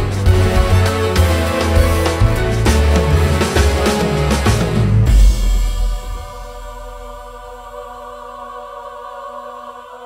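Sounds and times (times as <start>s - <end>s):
band music with bass and drums: 0.0s - 5.6s.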